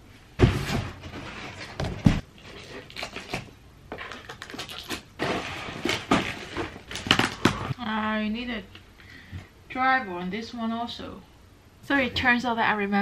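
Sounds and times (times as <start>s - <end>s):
cardboard packaging rustling: 0.4s - 7.7s.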